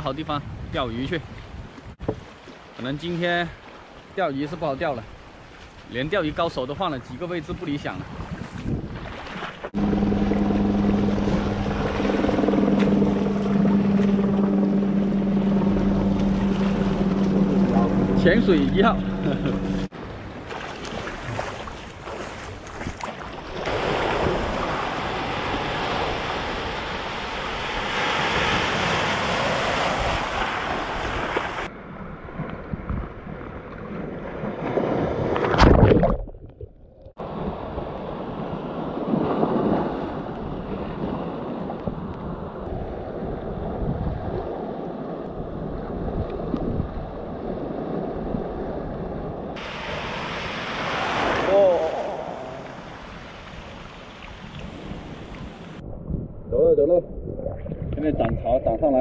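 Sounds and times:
wind buffeting microphone: 0.2 - 2.3, 6.3 - 19.9, 21.2 - 36.1, 37.2 - 49.6, 54.3 - 59.0
wave breaking with loud splash: 8.4 - 31.7, 37.2 - 41.6, 49.6 - 55.5
surf washing over rocks: 23.5 - 31.7, 49.6 - 55.8.

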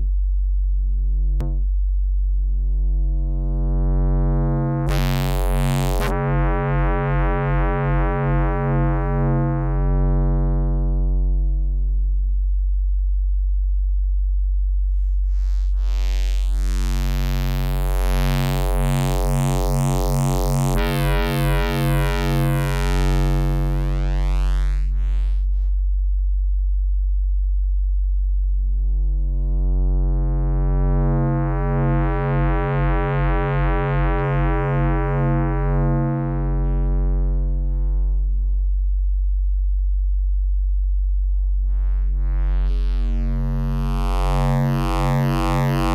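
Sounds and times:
synthesizer low note changing timbre: 2.8 - 11.9, 15.1 - 25.8, 28.8 - 38.6, 41.2 - 45.9.

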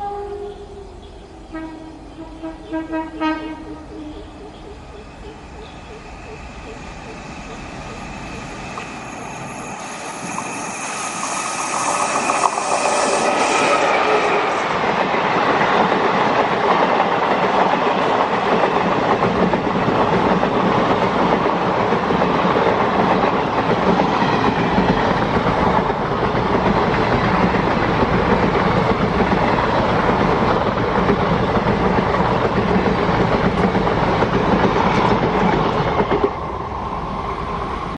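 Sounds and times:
electric locomotive passing: 0.0 - 37.9
train coaches rumbling past: 0.0 - 37.9
wheels clacking over rail joints: 14.7 - 36.4.

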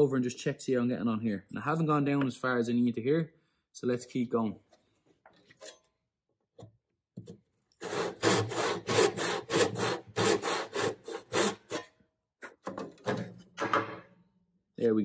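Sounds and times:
hand saw cutting wood: 7.8 - 13.3.

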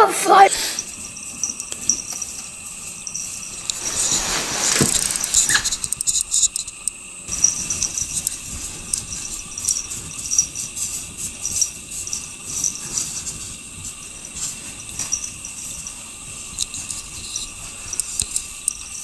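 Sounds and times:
cat scratching packed snow: 3.4 - 5.9.

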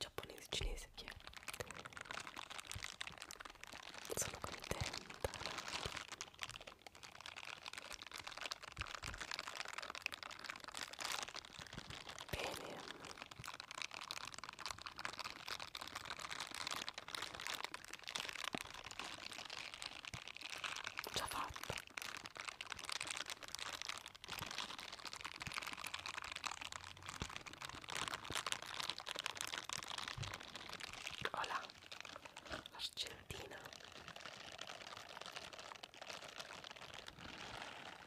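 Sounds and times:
scrubber gloves rubbing on microphone: 37.2 - 38.0.

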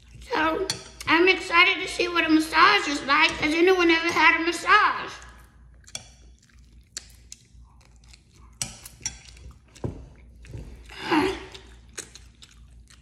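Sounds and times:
mouth chewing soft food: 5.2 - 13.0.

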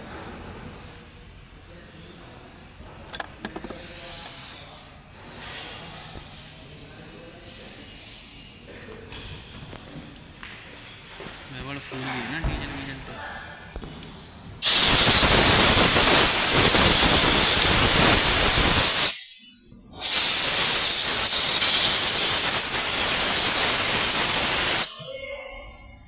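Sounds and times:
compressed air blow gun hissing: 14.6 - 25.0.

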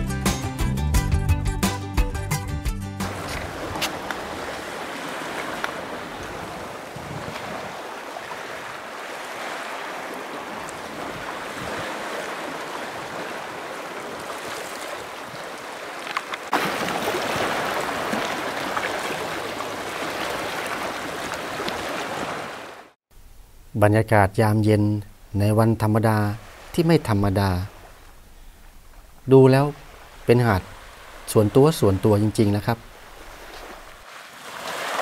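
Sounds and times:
sea waves washing onto beach: 3.0 - 23.0, 29.2 - 35.0.

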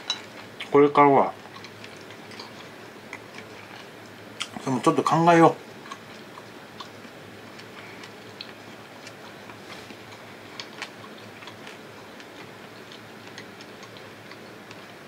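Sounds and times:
low steady hum: 0.0 - 15.0
eating clicks and ticks: 5.8 - 15.0.

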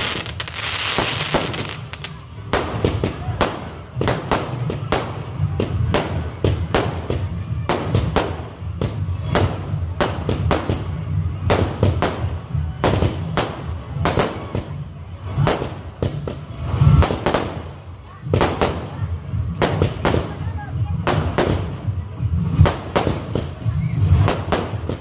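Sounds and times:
fireworks bangs and crackles: 0.0 - 25.0.

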